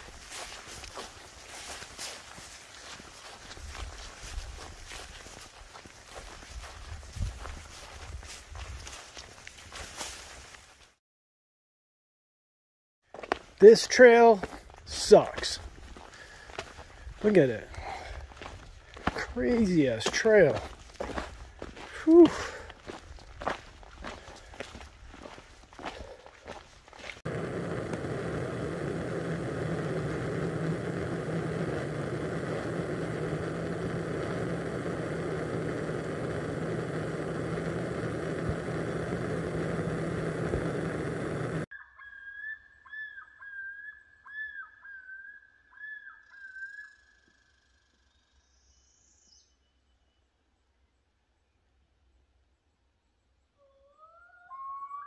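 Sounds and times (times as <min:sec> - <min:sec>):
footsteps: 0:00.0 - 0:11.0, 0:13.1 - 0:28.1
loud steady rushing noise: 0:27.3 - 0:41.6
bird whistling call: 0:41.7 - 0:50.2, 0:53.6 - 0:55.0.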